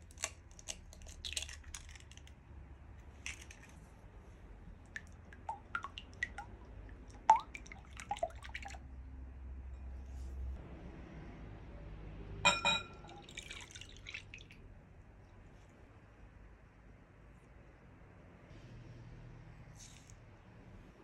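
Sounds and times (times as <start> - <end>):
egg cracking: 0.0 - 2.3
wet squishing: 0.0 - 2.4, 3.0 - 8.8, 13.2 - 14.6
knife tapping glass bowl: 12.5 - 13.2.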